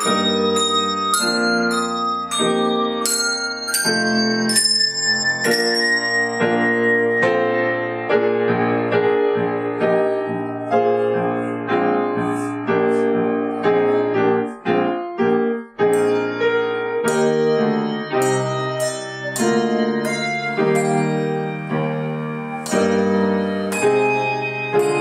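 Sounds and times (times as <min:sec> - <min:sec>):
handbells ringing: 0:00.0 - 0:08.9, 0:16.0 - 0:25.0
grand piano playing: 0:00.0 - 0:25.0.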